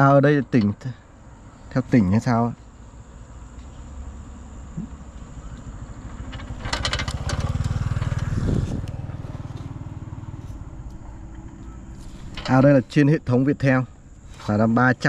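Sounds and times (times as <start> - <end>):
motorcycle passing by: 2.9 - 12.8.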